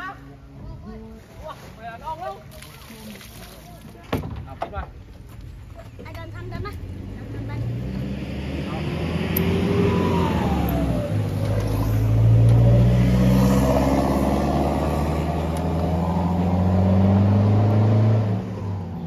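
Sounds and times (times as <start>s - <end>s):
falling whine: 8.6s - 17.4s.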